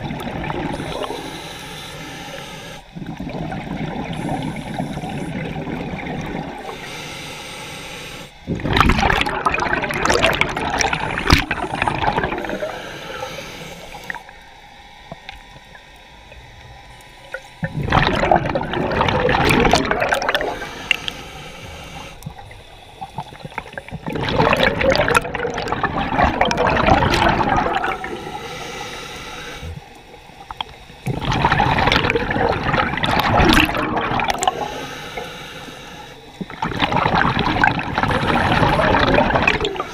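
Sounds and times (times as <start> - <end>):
diver exhaling bubbles through regulator: 0.0 - 1.4, 2.9 - 6.9, 8.5 - 14.3, 17.6 - 28.6, 31.0 - 35.3, 36.4 - 39.9.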